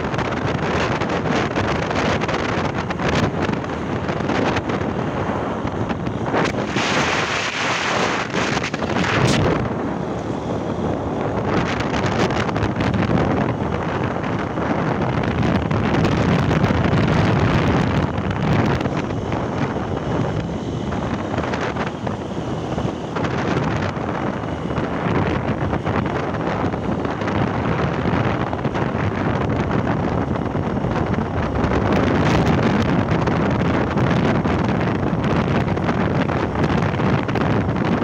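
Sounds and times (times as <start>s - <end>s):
motorcycle running and road noise: 0.0s - 38.0s
wind rushing over microphone: 0.0s - 38.0s.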